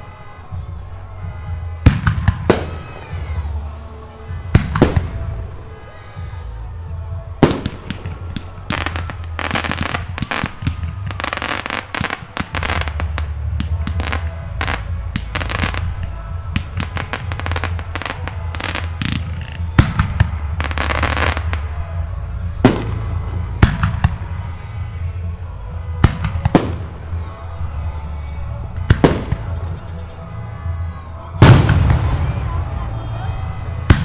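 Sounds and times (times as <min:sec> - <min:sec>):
firework bangs: 0:07.4 - 0:27.9, 0:28.7 - 0:30.0, 0:31.4 - 0:34.0
low rumble: 0:12.2 - 0:34.0.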